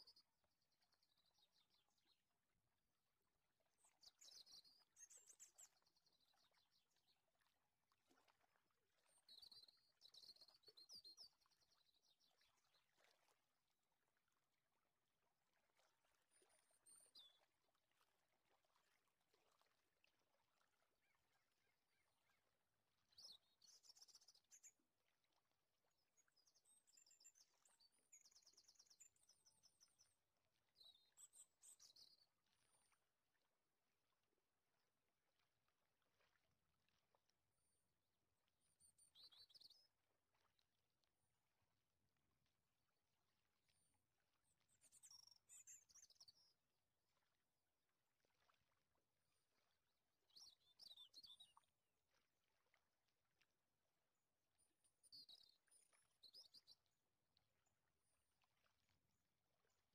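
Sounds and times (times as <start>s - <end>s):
faint birdsong: 0.0s - 2.6s, 3.3s - 13.4s, 20.6s - 33.5s, 38.7s - 40.6s, 44.4s - 47.3s, 49.6s - 51.8s, 54.9s - 57.0s.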